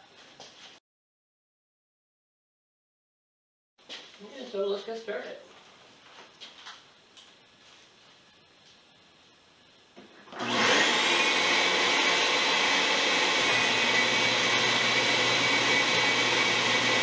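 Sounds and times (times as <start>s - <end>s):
shop vacuum running: 10.0s - 17.0s.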